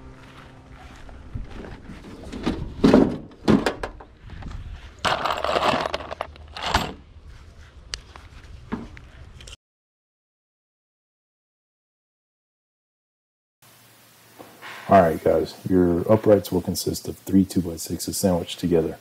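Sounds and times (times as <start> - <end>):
knocks of tools and boards: 2.8 - 4.0
screws rattling in plastic tub: 5.0 - 7.0.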